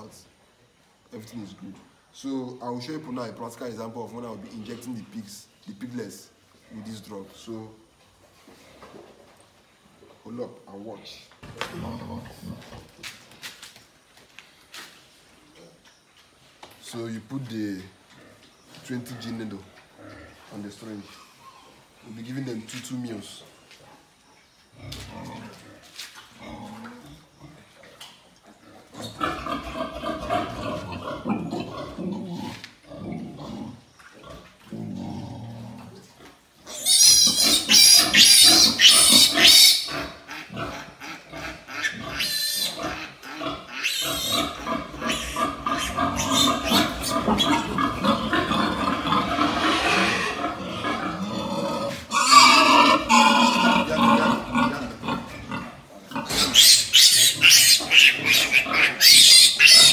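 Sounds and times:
piglet squealing: 36.7 - 40.5, 41.1 - 50.9, 52.1 - 54.5, 56.3 - 59.9.

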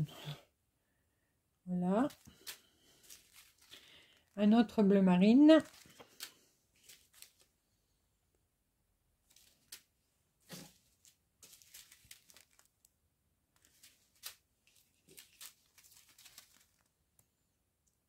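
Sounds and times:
plastic bags crinkling: 2.1 - 4.5, 5.5 - 7.5, 10.5 - 12.9, 13.6 - 16.9.

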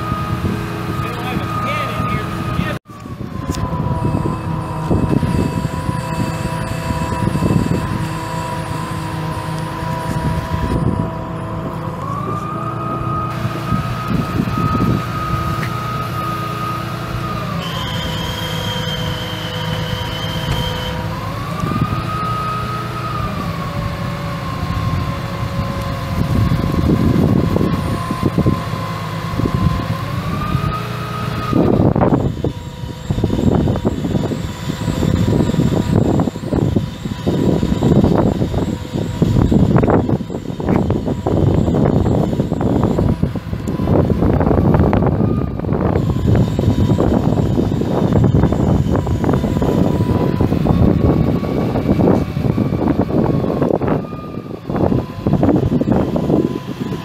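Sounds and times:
diesel truck engine whining: 0.0 - 57.0.

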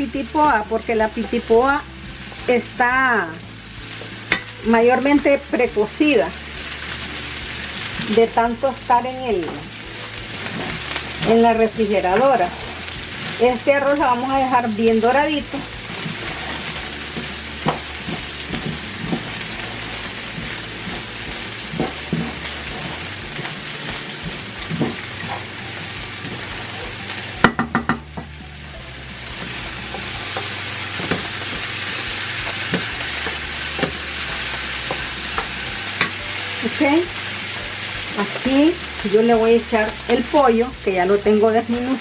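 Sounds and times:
rice sizzling in a pan: 0.0 - 42.0
vegetables frying: 0.0 - 42.0
wooden spoon scraping a pan: 6.5 - 27.5, 28.6 - 39.1.

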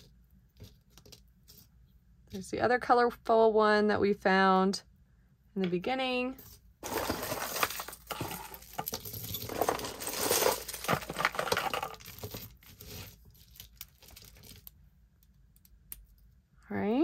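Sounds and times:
jewelry clicking and clinking: 6.8 - 14.7.

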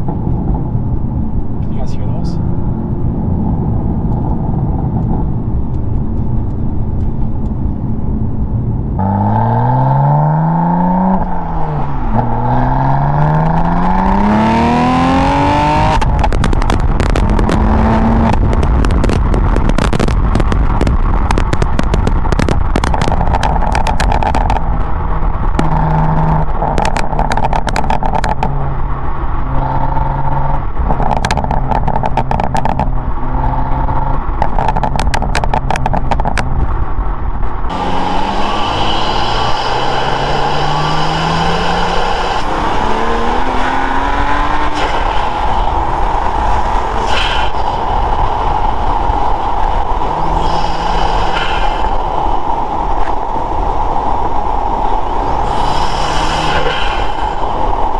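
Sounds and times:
car engine revving: 0.0 - 57.9
exhaust crackles: 3.1 - 57.9.

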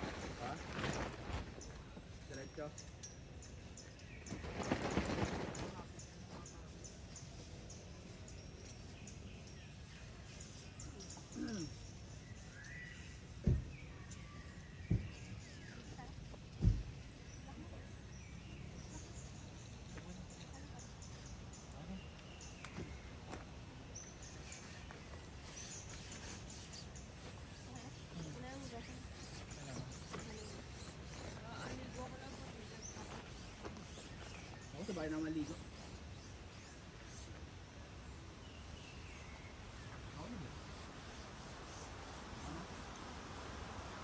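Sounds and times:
low background noise: 0.0 - 44.0
faint high bird chirps: 5.6 - 37.4.

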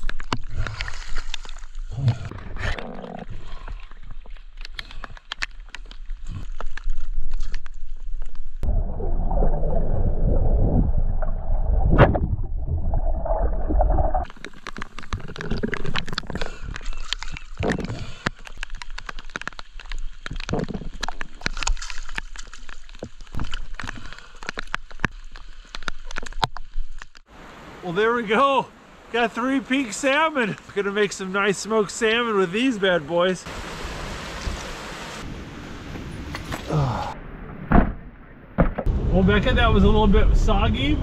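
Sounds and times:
water splashing: 0.0 - 30.6
raindrops pattering on water: 14.2 - 27.3.

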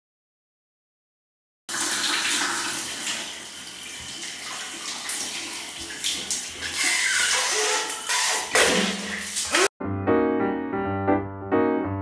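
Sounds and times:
shower spraying on tiles: 1.7 - 9.7.

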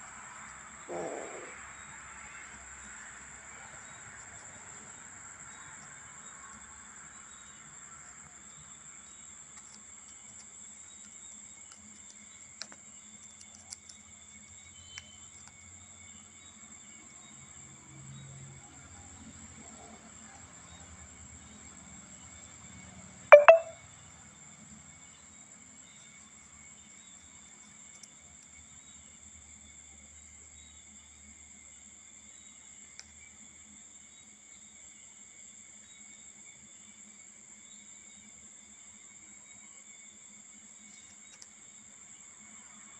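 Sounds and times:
crickets trilling: 0.0 - 19.5, 24.3 - 42.9
faint ticks: 40.9 - 41.6.

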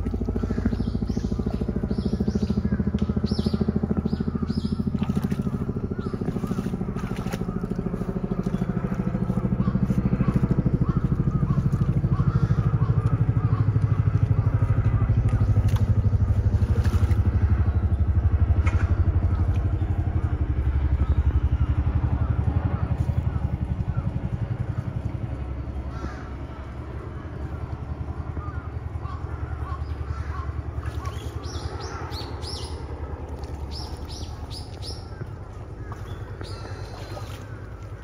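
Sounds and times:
low mechanical rumble: 0.0 - 38.0
short splashes: 4.4 - 12.8, 13.5 - 18.0, 33.3 - 38.0.

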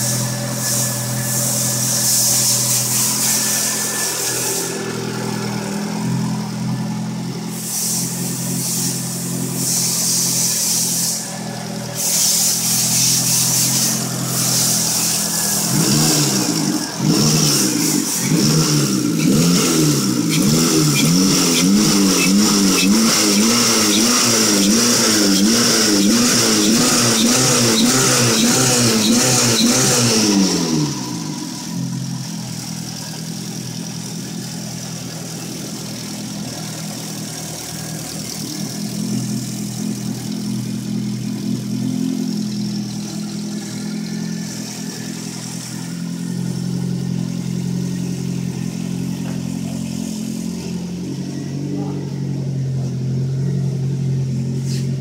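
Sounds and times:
high turbo whistle: 0.0 - 32.6
car engine idling: 0.0 - 55.0
car engine revving: 0.0 - 55.0.

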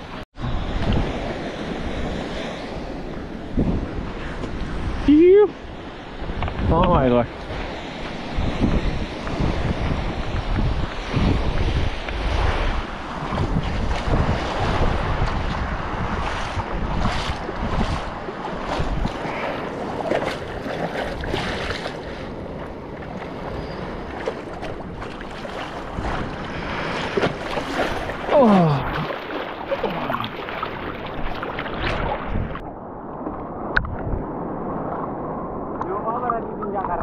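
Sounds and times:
wind on microphone: 0.0 - 37.0
water splashing and lapping: 7.3 - 35.8.

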